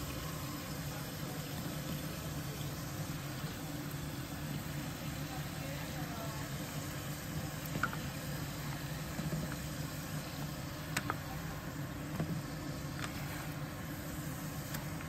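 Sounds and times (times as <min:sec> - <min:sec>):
low mechanical hum: 0:00.0 - 0:15.0
ladle stirring in a pot: 0:06.6 - 0:15.0.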